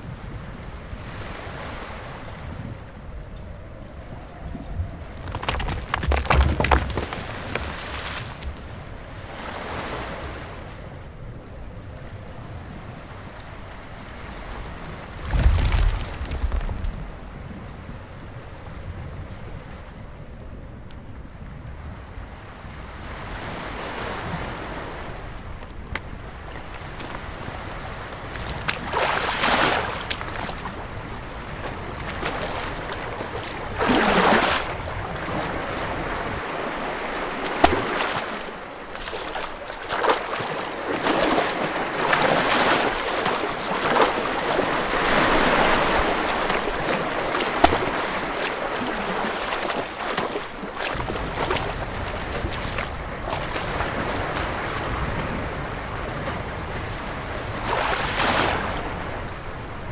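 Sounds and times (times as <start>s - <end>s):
sea waves surging over rocks: 5.1s - 10.5s, 26.2s - 59.9s.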